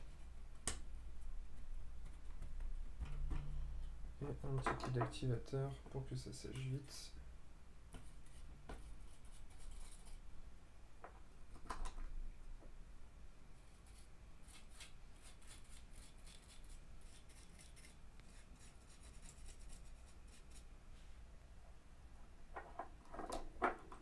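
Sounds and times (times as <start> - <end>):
faint scratching and rubbing: 8.0 - 10.2, 13.6 - 21.2.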